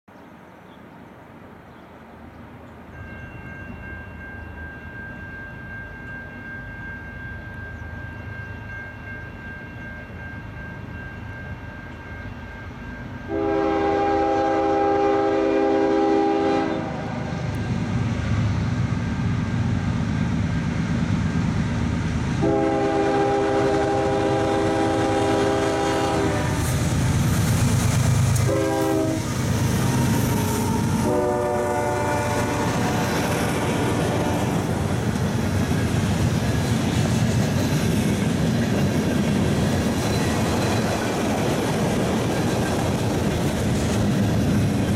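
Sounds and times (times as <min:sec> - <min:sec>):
diesel locomotive engines rumbling: 0:00.3 - 0:44.9
train air horn blasts: 0:13.2 - 0:17.6, 0:22.4 - 0:26.9, 0:28.4 - 0:34.8
wheels clacking on rail joints: 0:26.6 - 0:44.9.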